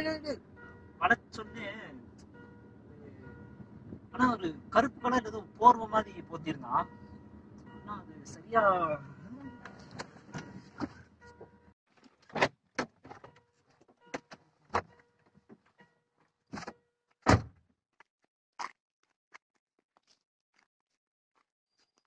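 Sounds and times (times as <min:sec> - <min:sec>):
car doors opening and shutting: 0:00.4 - 0:15.8, 0:16.5 - 0:17.6
car door slamming shut: 0:10.0 - 0:11.5, 0:16.6 - 0:17.5.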